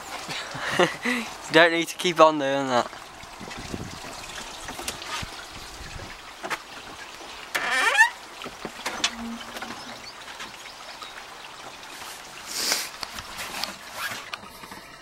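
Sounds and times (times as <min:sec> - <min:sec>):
door hinge squeak: 0:07.6 - 0:08.2, 0:08.8 - 0:10.2.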